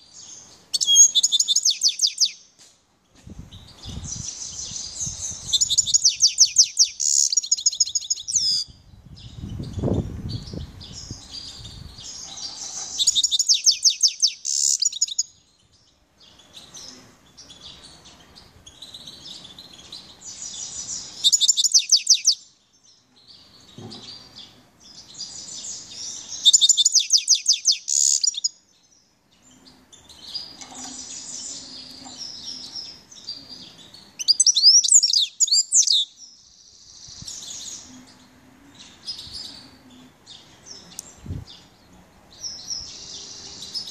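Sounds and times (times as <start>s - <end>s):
goldfinch singing: 0.2s - 2.4s, 4.1s - 8.7s, 10.4s - 15.3s, 16.3s - 22.4s, 24.9s - 28.6s, 29.5s - 36.3s.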